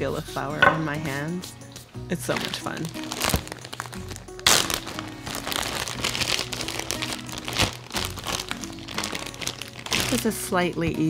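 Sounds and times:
background music: 0:00.0 - 0:11.0
plastic bag crinkling: 0:02.2 - 0:10.5.

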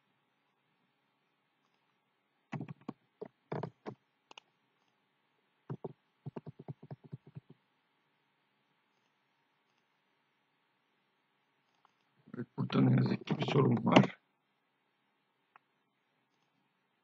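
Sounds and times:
computer keyboard keystrokes: 0:02.6 - 0:03.9.

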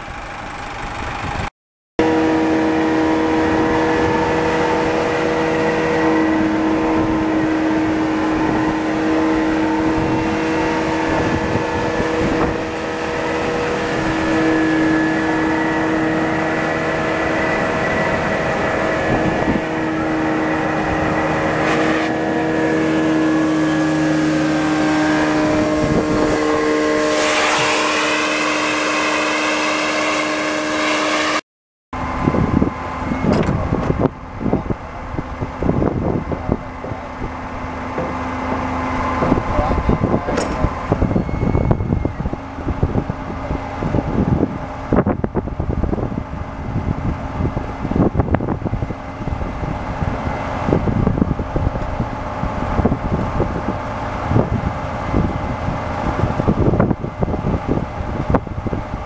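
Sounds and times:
vacuum truck droning: 0:00.0 - 0:31.4, 0:32.0 - 0:59.0
gusty noise: 0:01.0 - 0:31.3, 0:32.0 - 0:59.0
rising whistle: 0:02.0 - 0:31.4, 0:32.0 - 0:34.1, 0:37.8 - 0:43.4.

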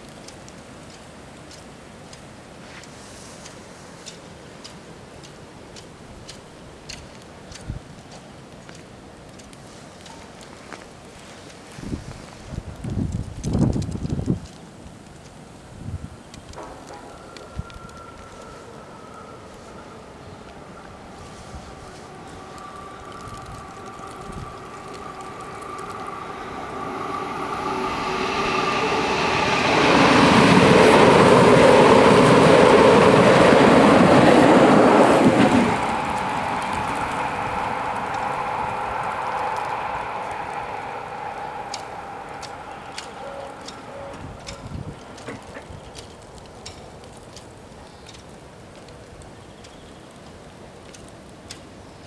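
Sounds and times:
faint high ticks: 0:00.0 - 0:11.6, 0:21.9 - 0:26.1, 0:35.8 - 0:40.7, 0:41.3 - 0:51.7
outdoor background hiss: 0:00.0 - 0:52.0
train wheels rushing on rails: 0:16.5 - 0:48.9.

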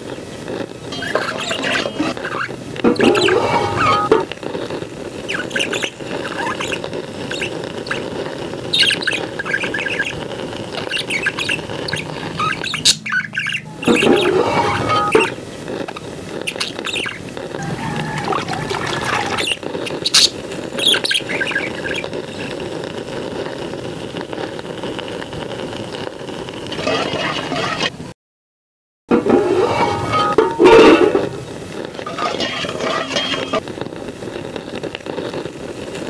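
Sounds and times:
wood fire crackling: 0:00.0 - 0:28.1, 0:29.1 - 0:36.0
birds chirping: 0:01.0 - 0:04.2, 0:05.3 - 0:08.1, 0:08.7 - 0:15.4, 0:16.5 - 0:22.1
steel pots and ladle clinking: 0:02.9 - 0:04.3, 0:29.1 - 0:31.4, 0:32.0 - 0:33.6.

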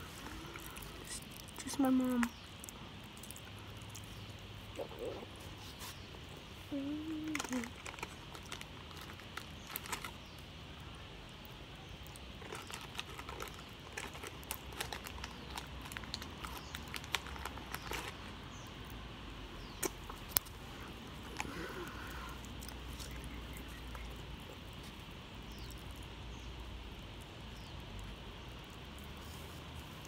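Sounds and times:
plastic wrapper crinkling: 0:00.0 - 0:05.8, 0:06.8 - 0:10.5, 0:12.0 - 0:18.5.

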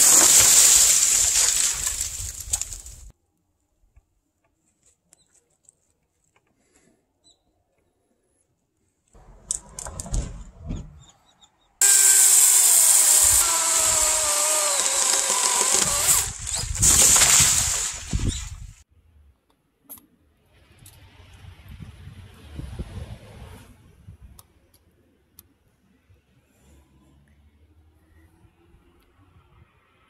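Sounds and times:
chainsaw cutting wood: 0:00.0 - 0:03.1, 0:11.8 - 0:18.6.

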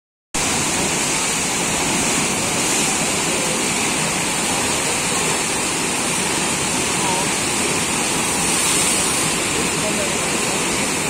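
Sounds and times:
river water rushing: 0:00.4 - 0:11.0.

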